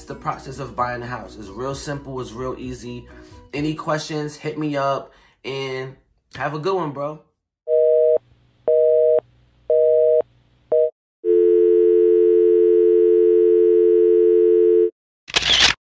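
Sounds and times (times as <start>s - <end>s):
dial tone: 7.7s - 15.0s.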